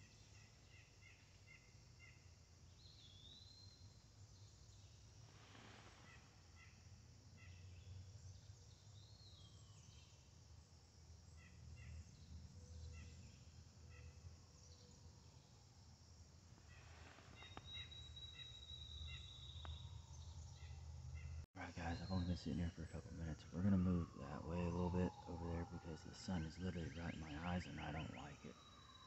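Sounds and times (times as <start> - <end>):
short bird chirps: 4.7 - 6.8, 16.6 - 22.8.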